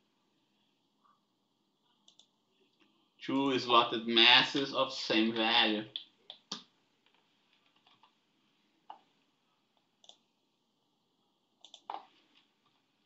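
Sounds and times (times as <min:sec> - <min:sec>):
keyboard keys clicking: 0:11.6 - 0:12.1.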